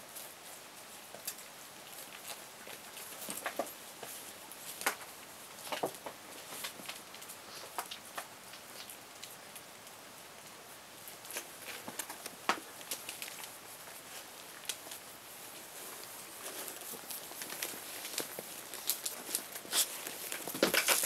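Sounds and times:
puppies scrabbling and rustling: 11.1 - 21.0.

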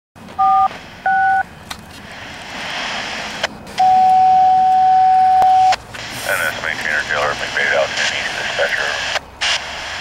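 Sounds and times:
two-tone touch-tone beep: 0.4 - 1.4, 3.8 - 5.8
radio static: 0.5 - 4.0, 5.4 - 10.0
steady single-pitch tone: 3.8 - 5.8.

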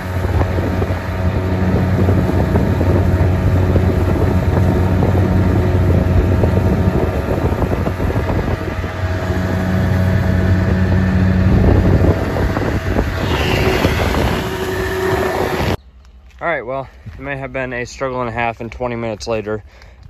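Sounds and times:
outboard motor running: 0.0 - 15.8
water rushing past hull: 0.0 - 15.8
wind buffeting microphone: 0.0 - 15.8.

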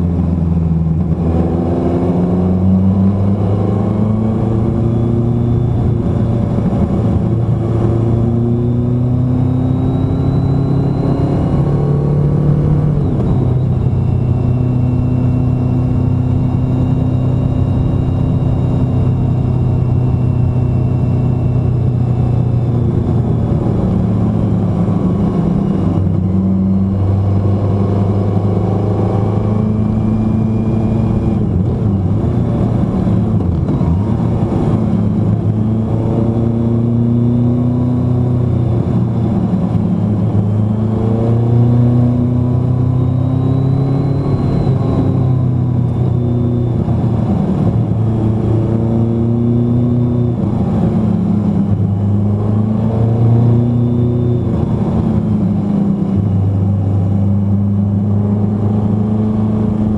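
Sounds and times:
vehicle engine running: 0.0 - 59.9
wind and tyre noise: 0.0 - 59.9.

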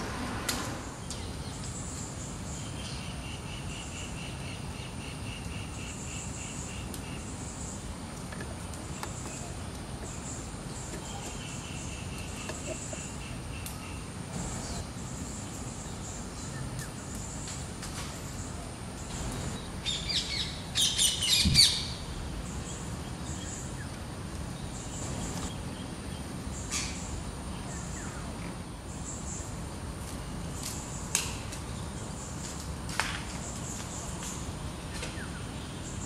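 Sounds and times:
parakeets calling: 19.1 - 23.9.

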